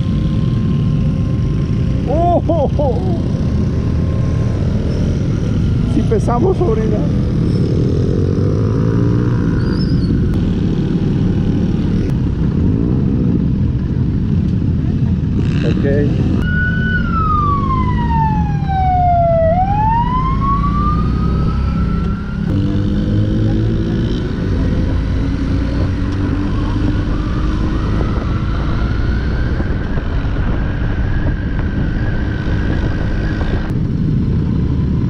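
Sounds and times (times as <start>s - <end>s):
motorcycle engine: 0.0s - 13.8s, 15.3s - 35.0s
police siren wailing: 16.4s - 22.5s
wind noise: 18.2s - 35.0s.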